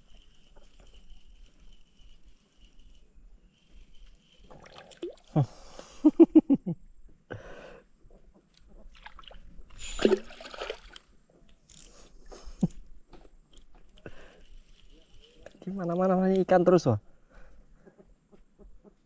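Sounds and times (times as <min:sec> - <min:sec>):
water splashing and dripping: 0:04.5 - 0:05.4, 0:08.9 - 0:11.1.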